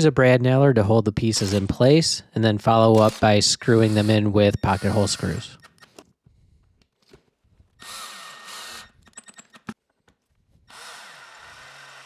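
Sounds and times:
sharp clicks of drill: 1.4s - 1.7s, 2.9s - 5.9s, 7.8s - 9.8s, 10.7s - 12.0s
cordless drill motor: 3.0s - 5.4s, 7.8s - 9.1s, 10.6s - 12.0s.

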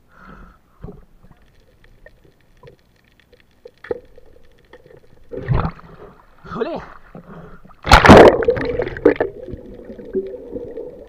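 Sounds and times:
faint underwater clicks and crackles: 0.0s - 11.0s
splash: 7.8s - 9.5s.

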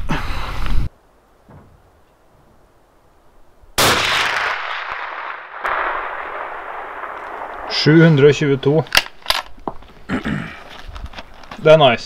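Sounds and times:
rifle shot with echo: 3.8s - 9.4s
sharp crack: 3.8s - 9.8s.

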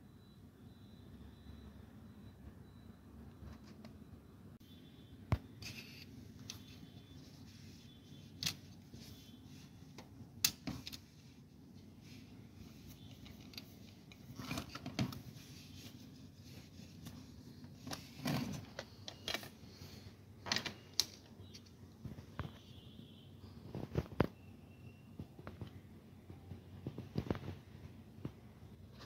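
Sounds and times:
faint steady hum: 0.0s - 29.0s
plastic parts clicking: 8.4s - 8.6s.

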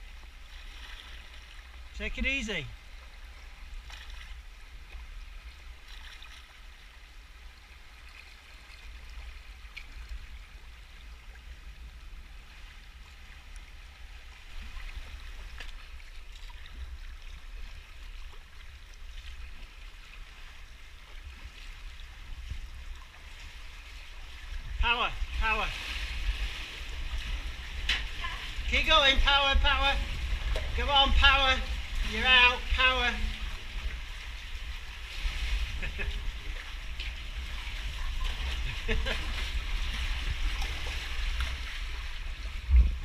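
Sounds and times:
low steady rumble: 0.0s - 43.0s
paddle splashes: 0.0s - 43.0s
sea water rushing and gurgling: 0.0s - 43.0s.

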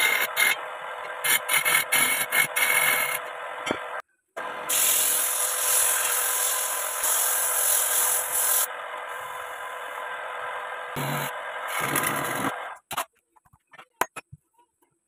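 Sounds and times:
sanding hiss on spinning wood: 4.7s - 9.4s.

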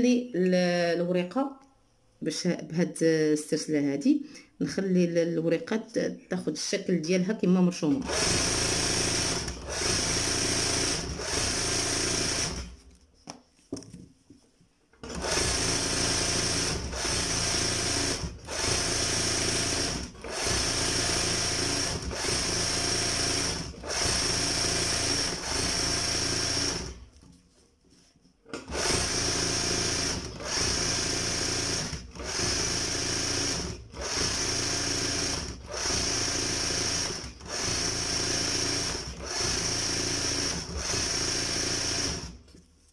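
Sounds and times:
embroidery sewing machine running: 8.0s - 12.8s, 15.0s - 27.0s, 28.6s - 42.4s.

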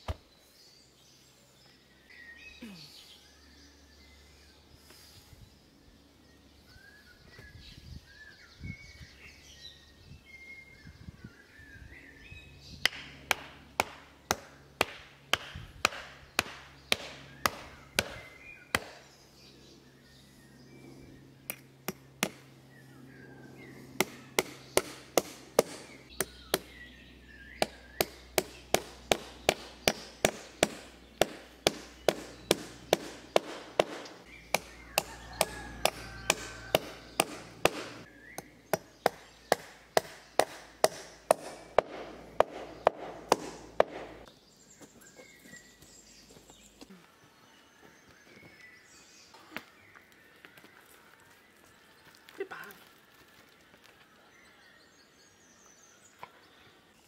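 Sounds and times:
birds chirping: 0.0s - 57.0s
hammer pounding wooden stake: 12.8s - 19.0s, 21.9s - 22.4s, 24.0s - 26.8s, 27.6s - 44.3s.

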